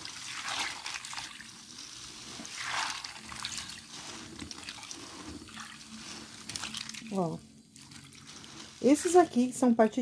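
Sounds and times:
water swishing and trickling: 0.0s - 9.8s.

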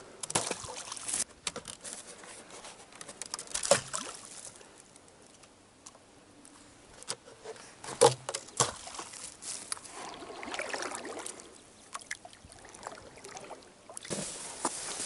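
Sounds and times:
water sloshing off paddle: 8.0s - 15.0s.

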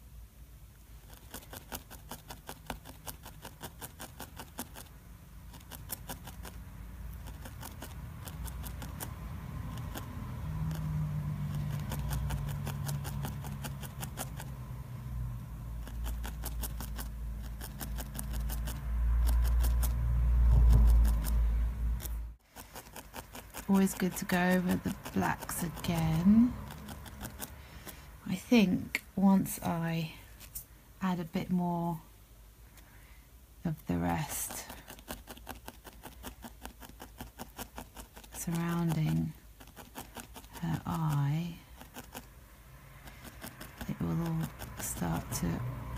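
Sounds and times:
felting needle ticking into wool: 1.0s - 4.9s, 5.5s - 14.6s, 22.0s - 27.6s, 34.1s - 42.3s, 43.0s - 45.7s.

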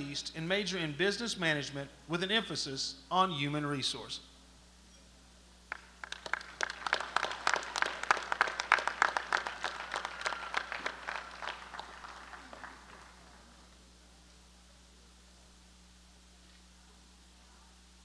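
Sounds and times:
audience applauding: 5.7s - 13.8s.

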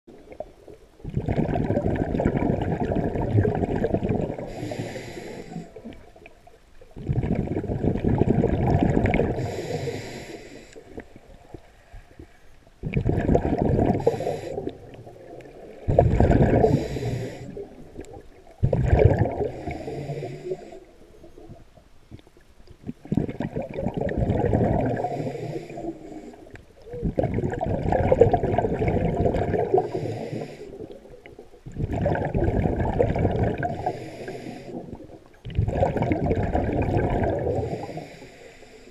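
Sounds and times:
bubbling exhale underwater: 0.1s - 6.3s, 7.0s - 10.0s, 12.8s - 20.7s, 22.8s - 25.7s, 26.8s - 34.0s, 34.6s - 38.1s
regulator hissing inhale: 4.5s - 6.0s, 9.3s - 11.0s, 14.0s - 14.9s, 16.6s - 17.8s, 19.4s - 21.1s, 25.0s - 26.6s, 29.7s - 31.0s, 33.7s - 35.0s, 37.5s - 38.9s.

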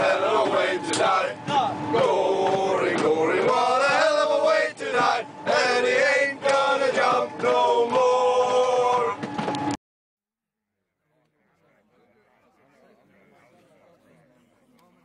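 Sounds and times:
group of men singing: 0.0s - 9.2s.

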